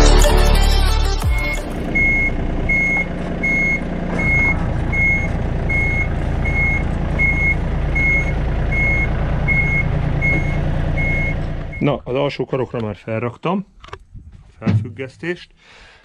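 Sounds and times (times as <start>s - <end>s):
engine running: 0.0s - 12.1s
reversing alarm beeping: 1.9s - 11.9s.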